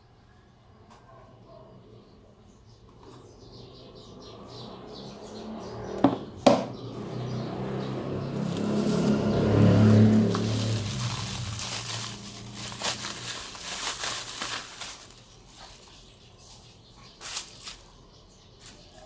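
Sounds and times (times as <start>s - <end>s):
bubble wrap crinkling: 8.3s - 16.1s, 17.2s - 17.9s.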